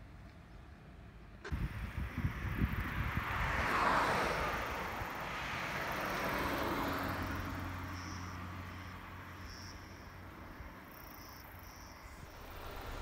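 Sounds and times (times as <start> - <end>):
car passing: 1.5 - 13.0
insect chirps: 1.6 - 13.0.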